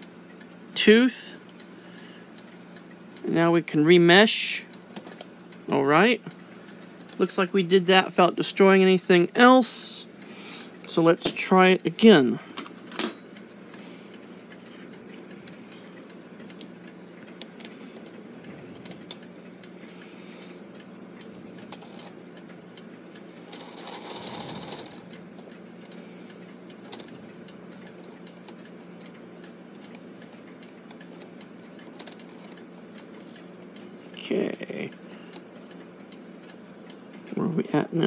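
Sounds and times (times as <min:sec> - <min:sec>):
metallic clicks of clock gears: 0:20.8 - 0:22.2, 0:22.8 - 0:34.2.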